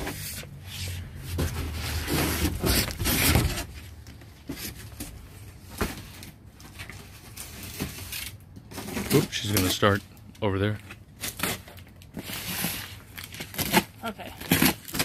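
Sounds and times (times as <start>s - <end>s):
cardboard rustling and scraping: 0.0s - 10.0s.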